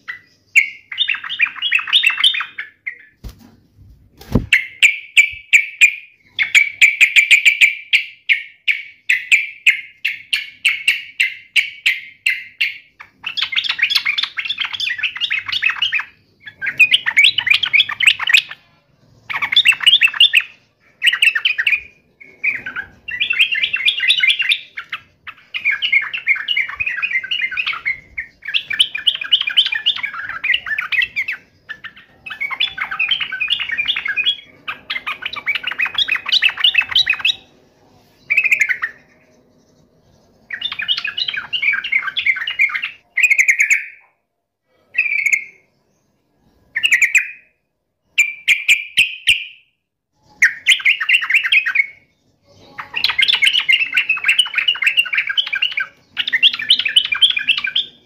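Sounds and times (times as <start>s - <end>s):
bird chattering song: 0.0s - 3.3s, 4.3s - 44.1s, 44.9s - 47.5s, 50.2s - 58.0s.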